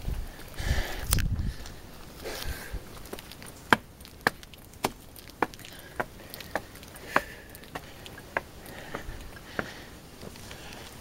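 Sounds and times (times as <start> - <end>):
boots on wooden steps: 3.0 - 11.0.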